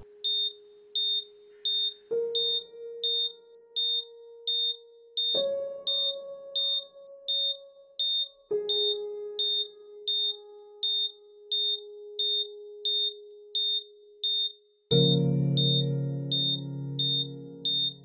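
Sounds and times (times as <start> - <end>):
patient monitor beeping: 8.2 - 18.0.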